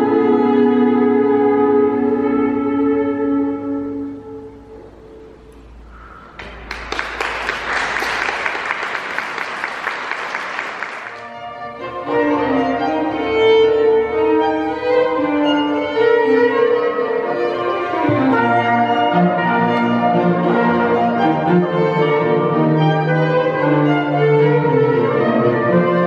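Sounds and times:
small orchestra playing: 0:00.0 - 0:26.0
audience applauding: 0:06.4 - 0:11.3.

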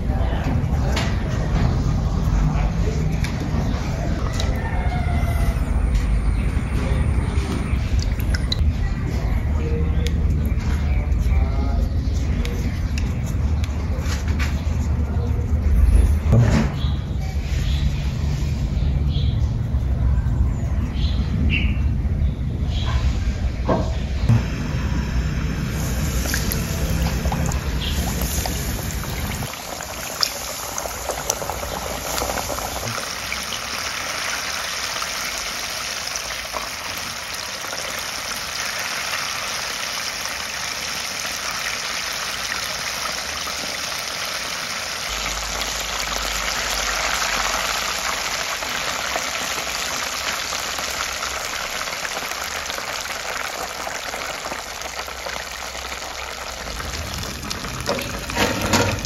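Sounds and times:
oil sizzling and bubbling: 0:00.8 - 0:08.6, 0:24.3 - 0:59.0.

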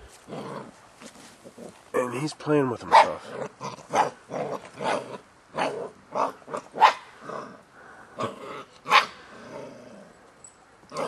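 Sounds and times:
puppies growling and barking: 0:00.2 - 0:01.8, 0:03.0 - 0:10.1.

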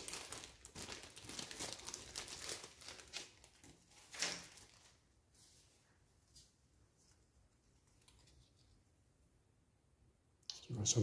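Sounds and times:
plastic zip bag crinkling: 0:00.0 - 0:05.0.

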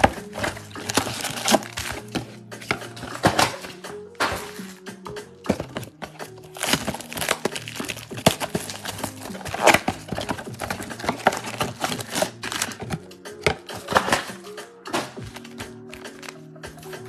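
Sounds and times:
cardboard box crinkling and rustling: 0:00.0 - 0:03.6, 0:05.5 - 0:13.1
faint background music: 0:00.0 - 0:17.0.

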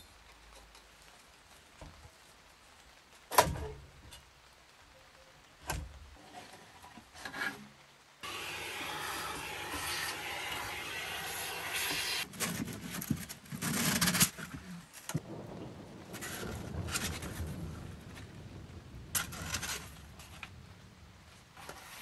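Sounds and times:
vacuum hose rushing: 0:08.2 - 0:12.3.

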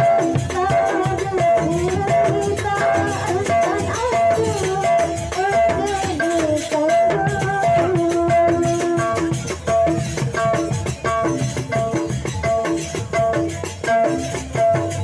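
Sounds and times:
woman singing into microphone: 0:00.0 - 0:09.6
drums and percussion beat: 0:00.0 - 0:15.0.

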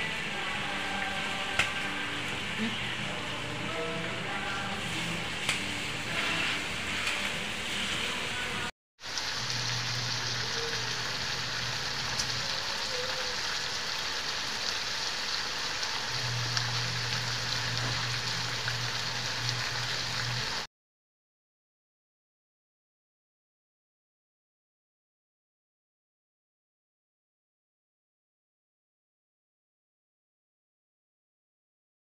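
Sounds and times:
meat sizzling in oil: 0:04.7 - 0:08.4, 0:09.0 - 0:20.7.

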